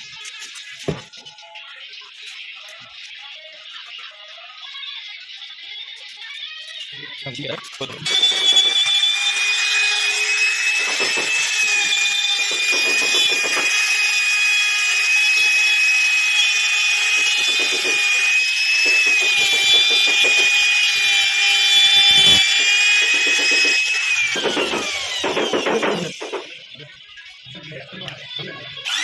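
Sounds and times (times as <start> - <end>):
router whining cutting wood: 7.4 - 26.7, 28.1 - 29.0.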